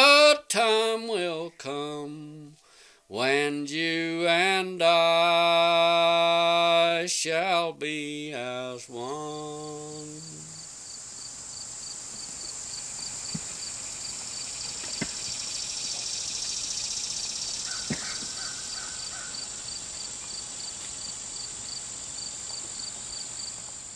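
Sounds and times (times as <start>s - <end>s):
insect chirping: 9.0s - 23.9s
insects high shrill drone: 9.1s - 23.9s
rasping call: 17.6s - 19.6s.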